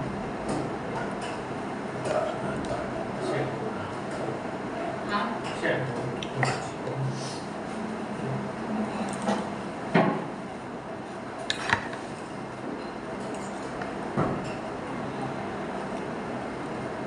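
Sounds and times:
low background hum: 0.0s - 17.0s
cutlery clinking on a plate: 11.5s - 12.0s.

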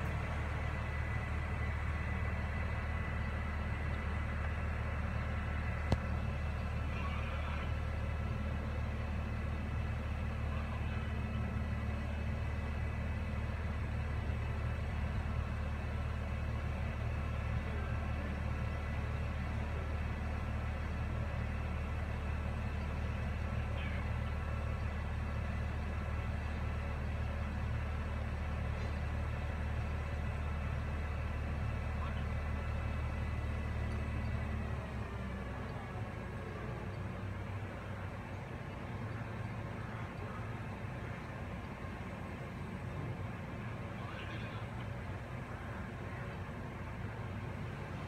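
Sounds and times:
crane engine humming: 0.0s - 48.0s.

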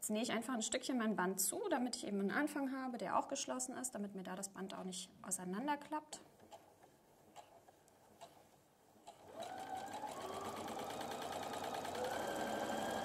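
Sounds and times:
electric sewing machine running: 9.2s - 13.0s.

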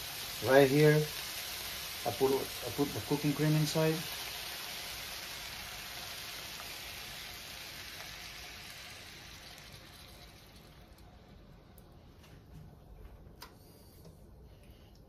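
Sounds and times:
food sizzling in a frying pan: 0.0s - 11.4s
cream pouring into pan: 3.6s - 11.4s.

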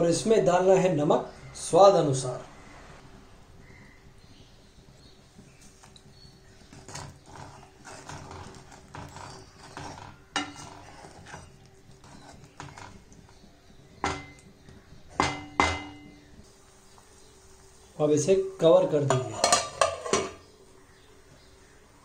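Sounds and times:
spatula stirring in metal pan: 5.4s - 16.2s
spatula knocking against pan: 14.0s - 16.2s.

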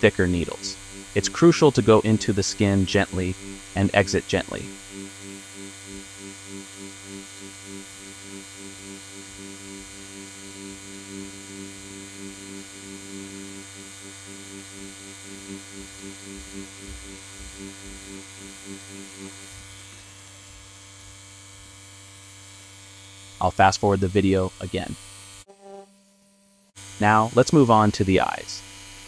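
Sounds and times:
steady low hum: 0.0s - 21.9s
tattoo machine buzzing: 0.0s - 23.5s, 24.4s - 29.0s.

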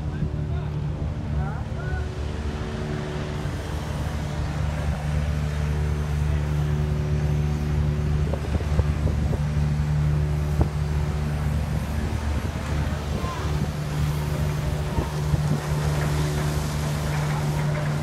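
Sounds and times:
machinery droning: 0.0s - 18.0s
machinery clatter: 11.9s - 18.0s.

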